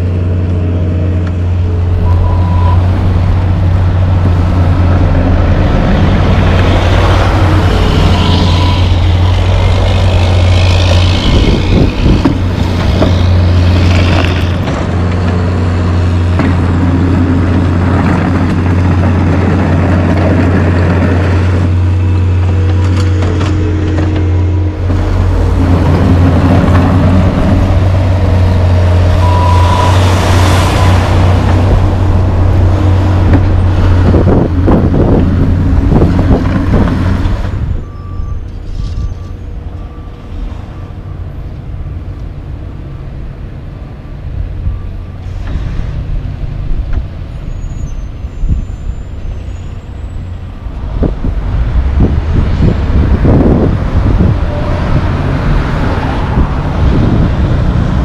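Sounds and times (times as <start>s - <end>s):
passing traffic: 0.0s - 58.0s
trucks passing: 0.0s - 58.0s.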